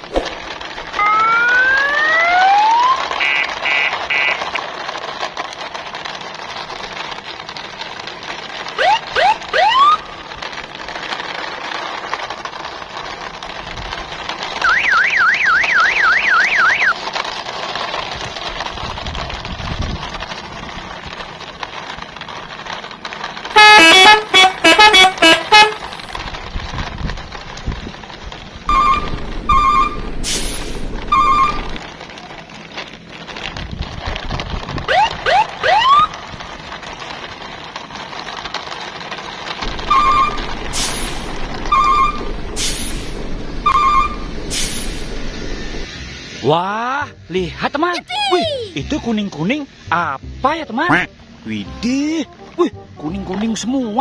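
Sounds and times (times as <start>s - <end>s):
rising whistle-like glides: 1.0s - 3.0s
warbling siren-like tone: 1.0s - 3.0s
loud horn honks: 23.6s - 25.8s.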